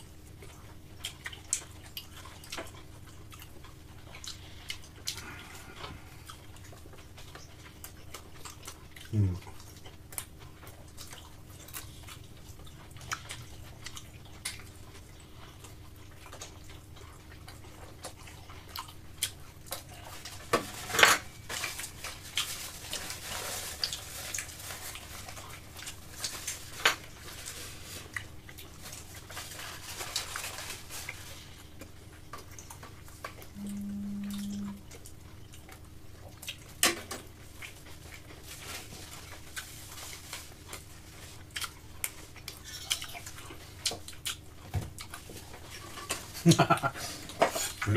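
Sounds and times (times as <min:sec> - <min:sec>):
low steady buzz: 0:31.3 - 0:36.1.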